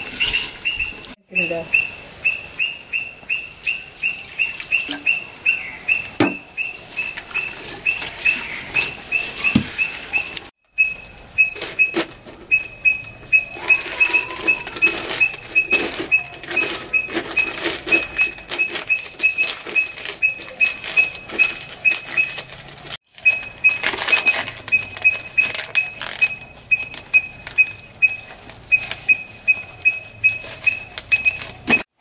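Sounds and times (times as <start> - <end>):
newspaper crackling and rustling: 13.6 - 31.9.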